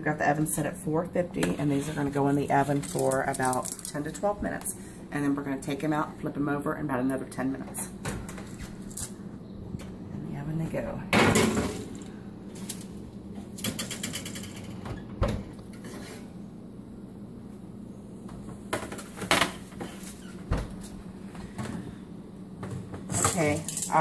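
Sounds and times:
steady low hum: 0.0s - 24.0s
baking sheet scraping oven rack: 15.7s - 16.4s.

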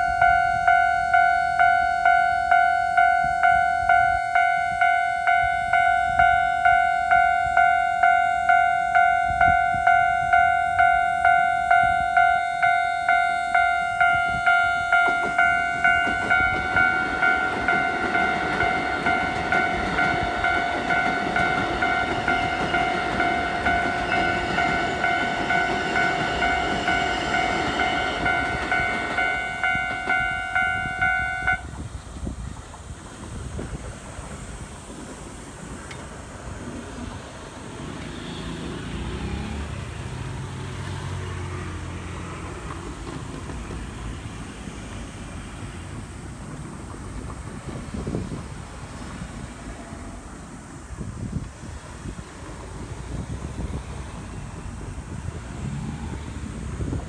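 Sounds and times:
level crossing bell dinging: 0.0s - 31.6s
train wheels clattering: 9.2s - 40.0s, 42.1s - 50.2s.

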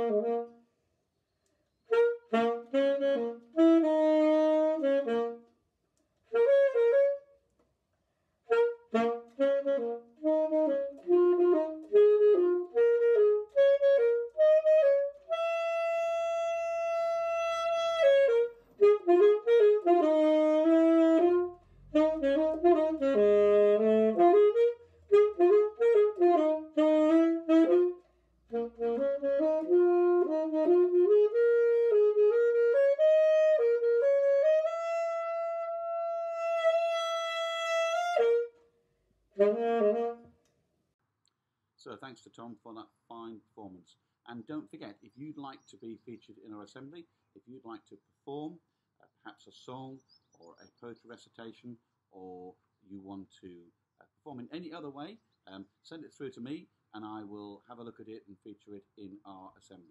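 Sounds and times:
alto saxophone melody: 0.0s - 0.7s, 1.8s - 5.6s, 6.2s - 7.5s, 8.4s - 40.5s.

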